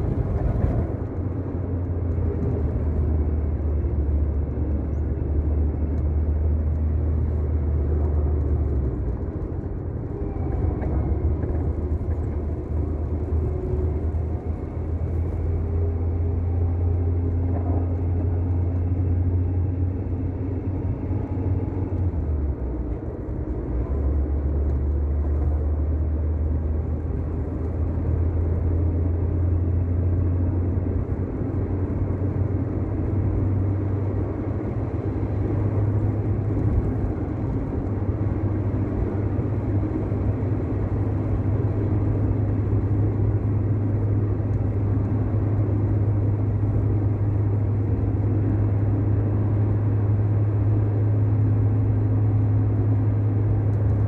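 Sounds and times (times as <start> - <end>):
car engine drone: 0.0 - 54.0
road rumble: 0.0 - 54.0.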